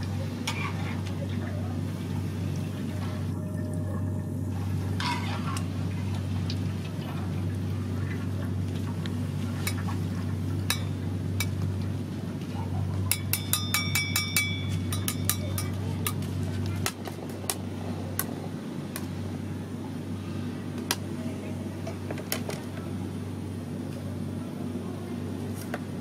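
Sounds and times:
low steady hum: 0.0s - 26.0s
metal spatula tapping mesh strainer: 13.1s - 15.8s.

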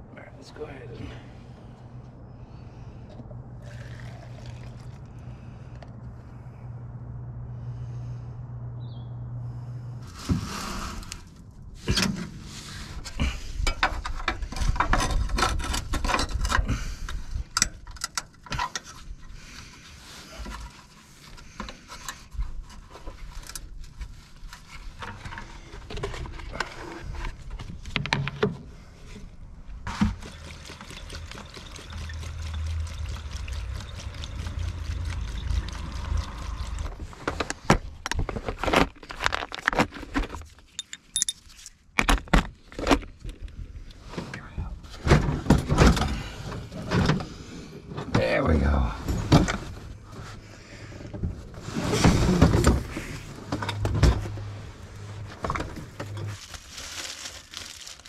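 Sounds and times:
gasoline pouring into tank: 3.6s - 5.3s, 29.9s - 37.6s.

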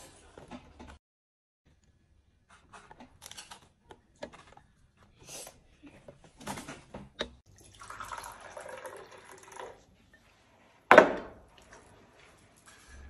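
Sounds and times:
tea pouring from a teapot: 7.6s - 9.9s.

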